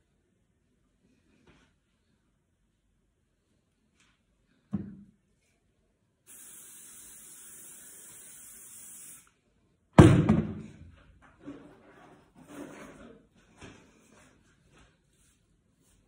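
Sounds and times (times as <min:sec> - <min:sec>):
aerosol spray can hissing: 0:06.3 - 0:09.3
loud thump: 0:10.0 - 0:10.8.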